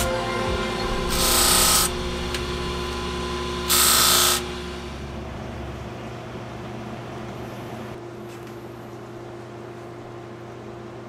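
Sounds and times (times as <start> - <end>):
bench grinder motor humming: 0.8 - 5.1.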